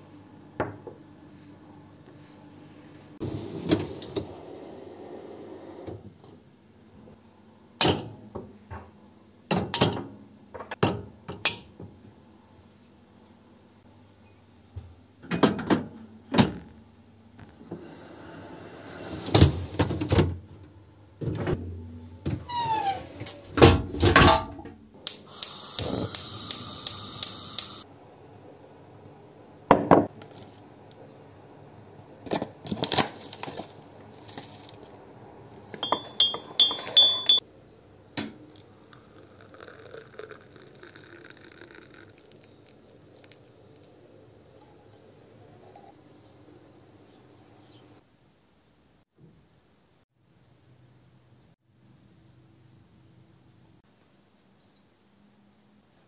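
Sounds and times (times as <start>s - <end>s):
kitchen knocks and rattles: 15.3s - 16.6s
drinking glasses clinking: 35.8s - 37.4s.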